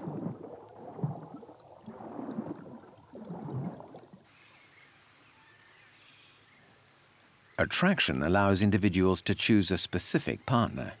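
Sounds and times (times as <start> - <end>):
crickets trilling: 3.2 - 11.0.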